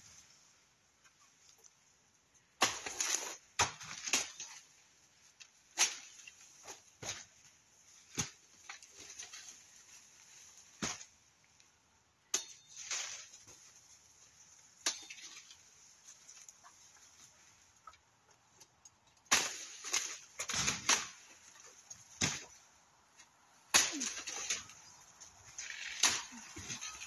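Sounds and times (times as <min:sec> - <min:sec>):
crackling leaf rustles: 0:04.0 - 0:11.7, 0:12.7 - 0:17.8, 0:19.4 - 0:27.0
banana leaves snapping: 0:19.3 - 0:22.5, 0:23.7 - 0:27.0.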